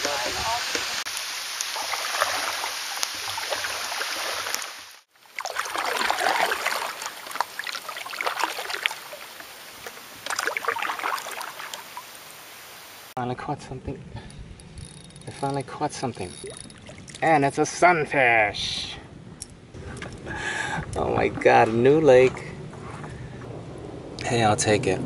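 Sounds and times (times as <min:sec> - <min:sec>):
paddle swishing water: 0:00.0 - 0:13.1
rain falling on water: 0:00.0 - 0:13.2.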